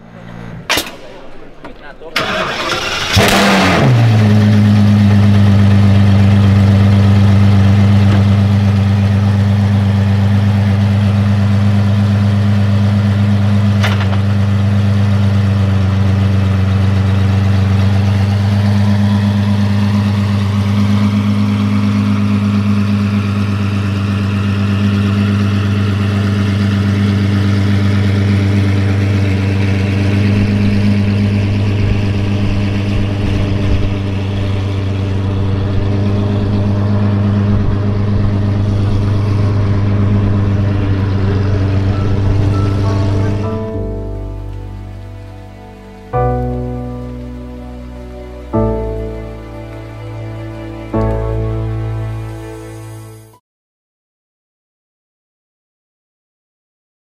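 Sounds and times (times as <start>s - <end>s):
car engine idling: 0.0s - 53.0s.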